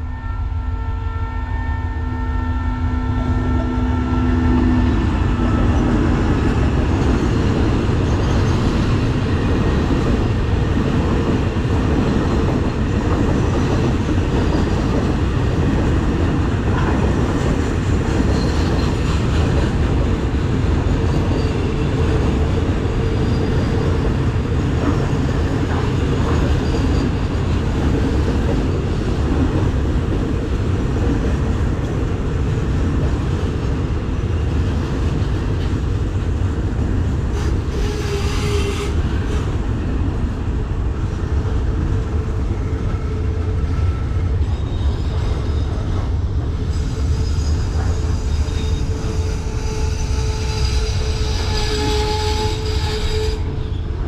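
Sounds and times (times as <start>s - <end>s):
freight train rumbling: 0.0s - 54.0s
wheel squeals: 46.8s - 53.2s.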